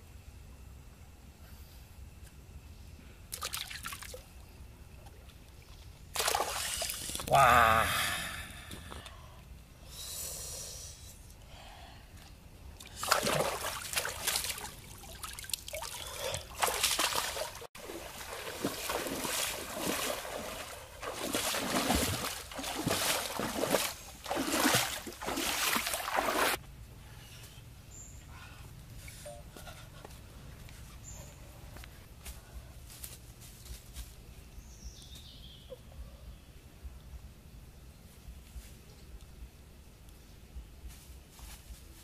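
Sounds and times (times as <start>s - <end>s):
water splashing and trickling: 3.3s - 4.3s, 5.0s - 7.3s, 12.8s - 26.6s.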